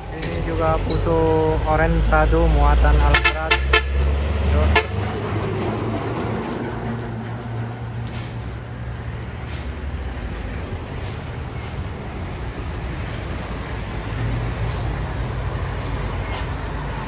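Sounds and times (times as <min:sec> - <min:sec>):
truck engine drone: 0:00.0 - 0:17.0
faint short hisses: 0:08.0 - 0:08.4.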